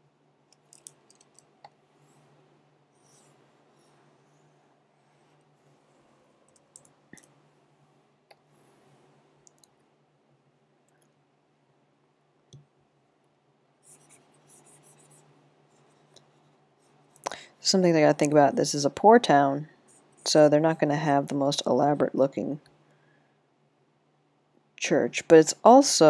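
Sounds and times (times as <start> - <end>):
soft clicks: 9.4 - 9.8.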